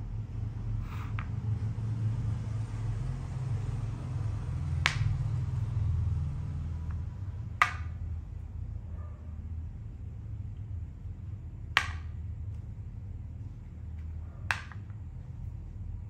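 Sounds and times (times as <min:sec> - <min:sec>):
steady low hum: 0:00.0 - 0:16.0
chess pieces clicking on board: 0:00.8 - 0:01.4, 0:04.7 - 0:05.3, 0:06.8 - 0:08.0, 0:11.8 - 0:12.6, 0:13.9 - 0:15.0.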